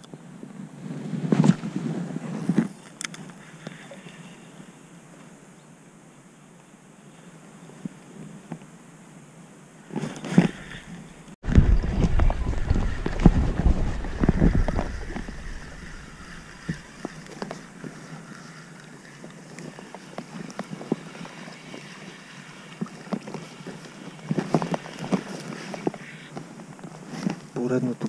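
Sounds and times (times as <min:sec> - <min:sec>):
wind rumble on microphone: 0:00.1 - 0:02.8, 0:09.9 - 0:22.0.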